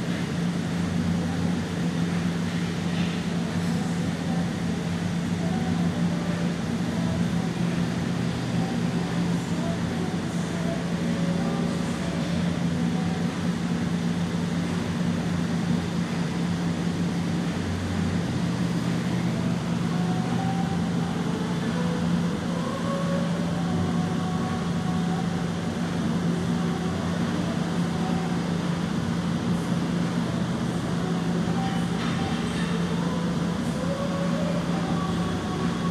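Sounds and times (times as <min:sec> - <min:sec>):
low mechanical drone: 0:00.0 - 0:35.9.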